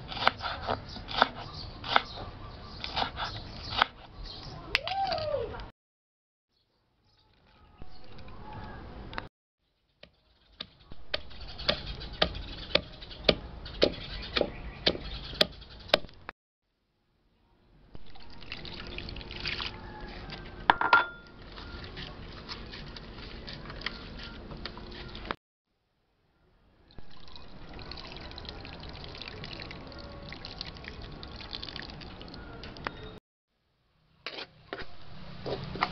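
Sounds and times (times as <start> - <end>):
wet squeezing and splashing: 18.0 - 20.6, 27.7 - 32.4.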